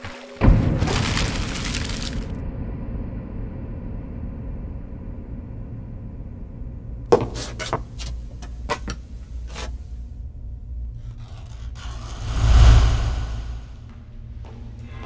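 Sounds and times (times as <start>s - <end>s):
steady low rumble: 12.0s - 14.0s
rush of noise with deep boom: 12.1s - 13.8s.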